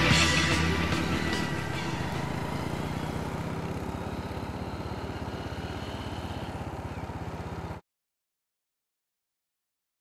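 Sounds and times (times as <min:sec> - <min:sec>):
small motorcycle engine: 0:00.0 - 0:07.8.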